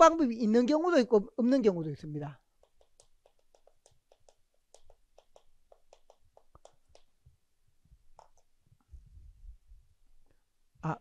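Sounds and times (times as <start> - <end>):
chalk tapping on chalkboard: 2.4 - 7.3, 8.1 - 8.6.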